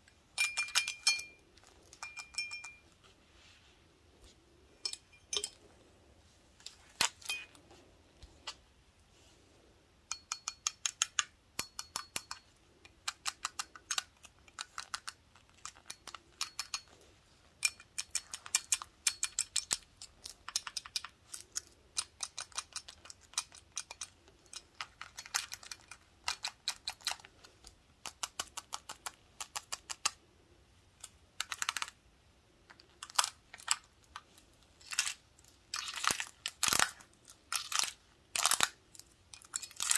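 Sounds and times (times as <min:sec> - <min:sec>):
toothpicks tapping on glass: 0:02.0 - 0:02.8
high glassy ring: 0:02.0 - 0:02.9, 0:04.8 - 0:05.6.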